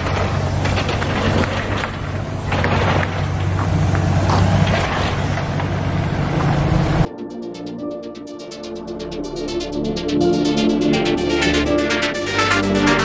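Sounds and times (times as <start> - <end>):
heavy machinery engine humming: 0.0 - 7.1.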